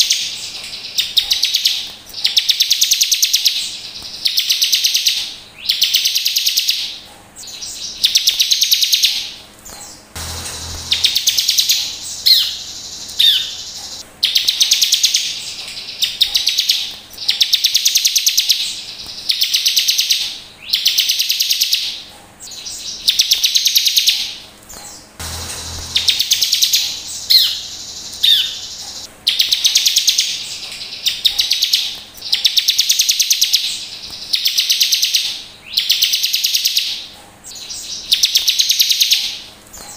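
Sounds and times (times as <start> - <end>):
bird buzzy trills: 0.0 - 39.9.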